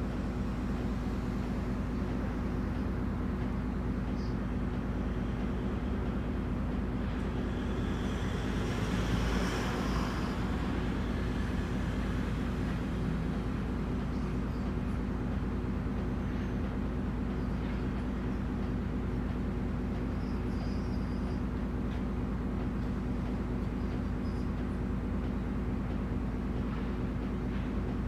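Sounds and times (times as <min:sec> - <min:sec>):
diesel engine idling: 0:00.0 - 0:18.5.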